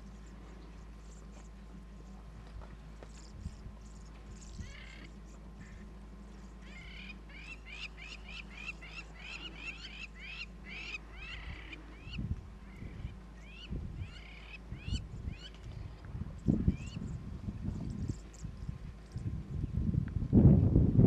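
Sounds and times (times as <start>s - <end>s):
steady low hum: 0.0s - 21.0s
small birds chirping: 3.0s - 17.2s.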